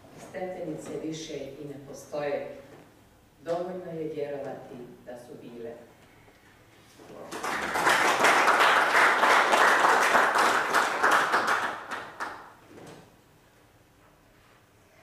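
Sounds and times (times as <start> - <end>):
audience applauding: 7.3 - 12.5.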